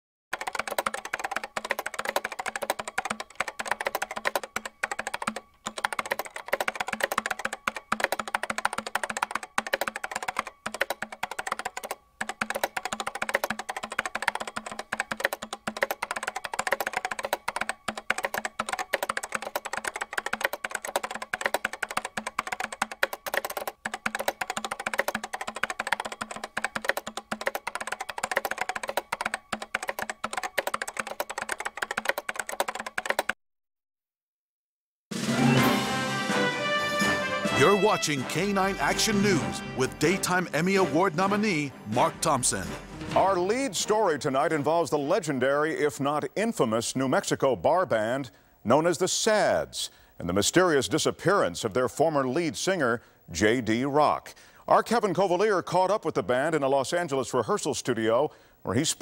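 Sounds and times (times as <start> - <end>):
rapid keyboard typing: 0.3 - 33.4, 37.6 - 47.2.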